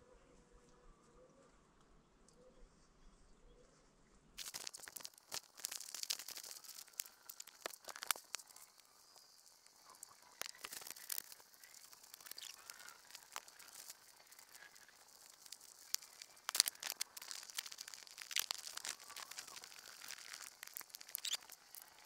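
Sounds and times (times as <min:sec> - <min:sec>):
clothes rustling and crinkling: 0:04.4 - 0:22.0
sharp crackles: 0:04.4 - 0:22.0.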